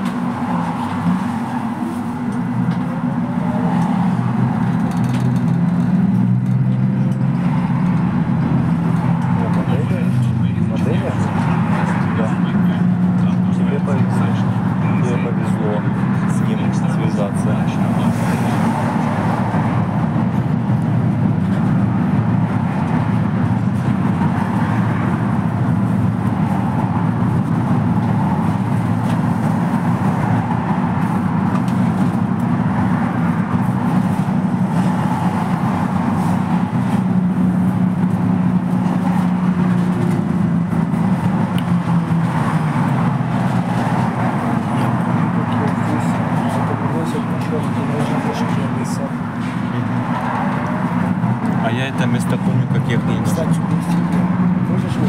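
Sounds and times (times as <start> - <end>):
trolleybus ride rumble: 0.0 - 55.0.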